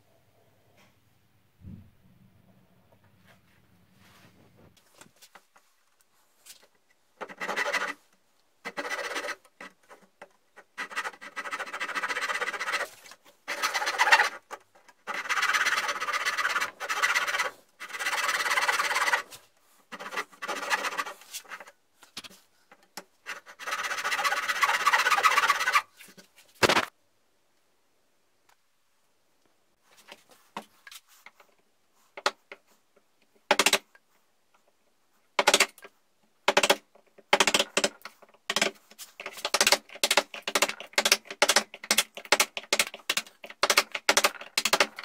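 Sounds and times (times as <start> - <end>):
handsaw rasping strokes: 7.2 - 8.0, 8.7 - 9.8, 10.7 - 21.7, 23.3 - 25.9.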